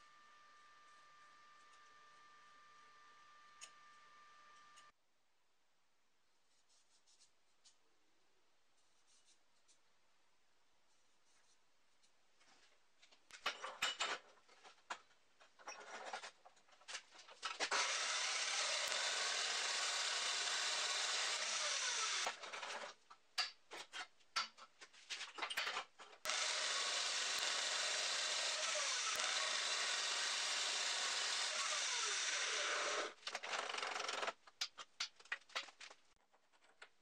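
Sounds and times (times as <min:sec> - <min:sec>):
circular saw cutting steel: 0:17.7 - 0:22.4, 0:26.3 - 0:33.2.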